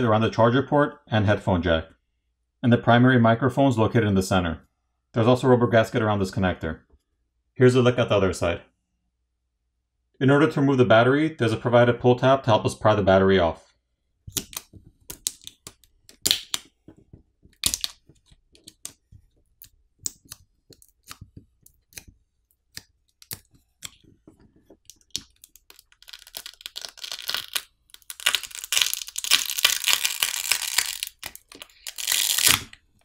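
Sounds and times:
adhesive crackling and tearing: 14.3s - 16.7s, 17.5s - 19.0s, 19.6s - 32.9s.

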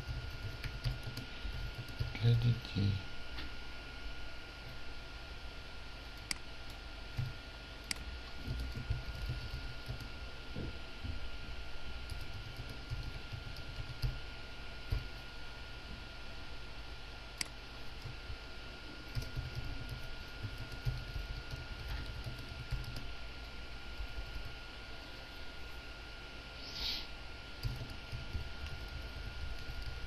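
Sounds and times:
computer keyboard typing: 0.0s - 2.4s, 6.0s - 10.2s, 12.0s - 14.2s, 19.0s - 23.1s, 27.6s - 30.0s
faint steady hum: 0.0s - 30.0s.

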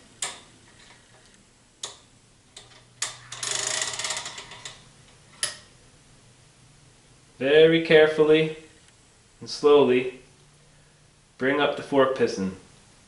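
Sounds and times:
metal on metal rattle: 2.6s - 5.8s.

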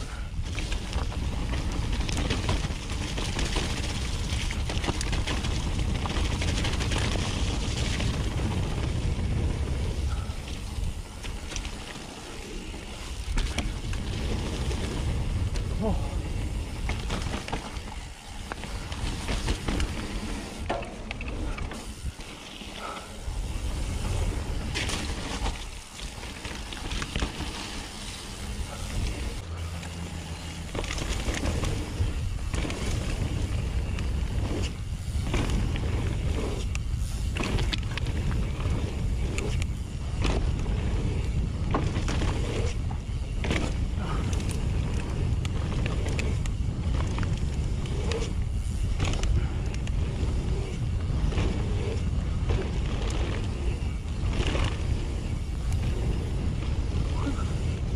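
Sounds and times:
wind buffeting microphone: 0.0s - 29.5s, 30.1s - 57.9s
bike clattering: 0.0s - 57.9s
tyres rumbling over dirt and rocks: 0.0s - 57.9s.

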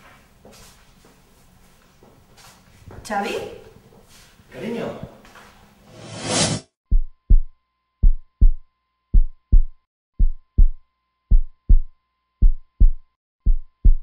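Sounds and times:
heartbeat thumps: 6.9s - 14.0s.

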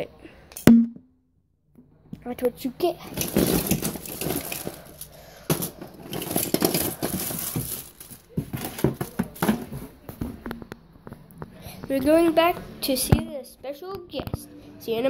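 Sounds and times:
rustling handling noise: 2.9s - 11.3s.

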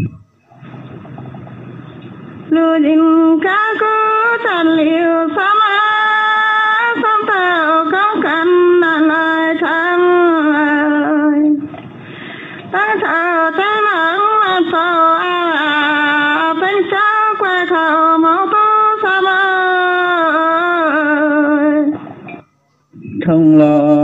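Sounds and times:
woman singing unaccompanied: 2.5s - 11.6s, 12.7s - 22.0s.

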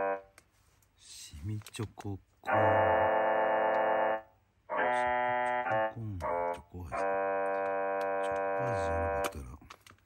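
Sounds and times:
electronic keyboard chords: 0.0s - 0.3s, 2.5s - 9.3s
plastic snack bag clicking: 9.2s - 10.0s.

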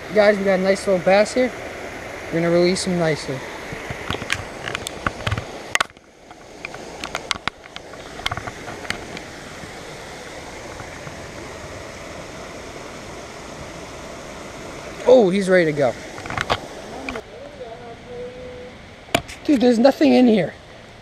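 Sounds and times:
water rushing over dam: 0.0s - 21.0s
sharp clicks and knocks: 3.7s - 9.3s, 16.2s - 17.2s.

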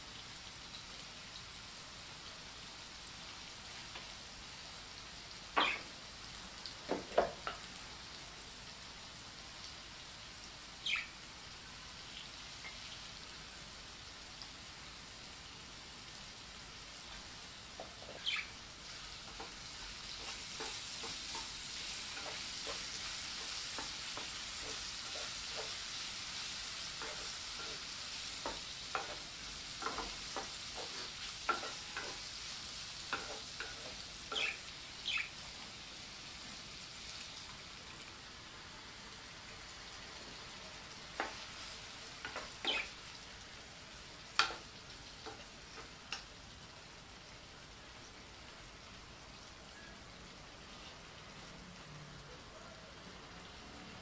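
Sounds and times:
food sizzling in oil: 0.0s - 54.0s
wooden spoon scraping and knocking pan: 20.2s - 25.8s, 27.0s - 32.2s.

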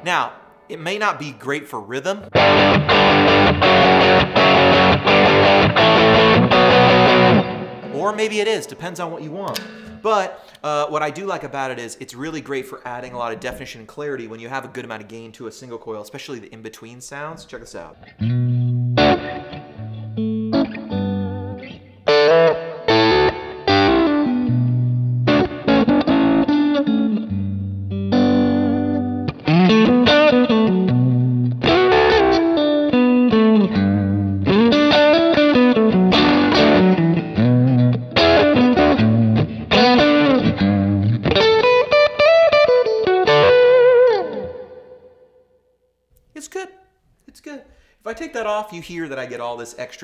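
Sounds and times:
distorted electric guitar: 2.2s - 7.9s, 17.9s - 45.1s.

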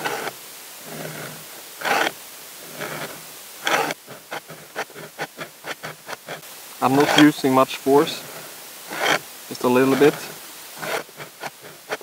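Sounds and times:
knife scraping in sharpener: 1.8s - 2.2s, 2.8s - 6.4s, 9.9s - 12.0s.

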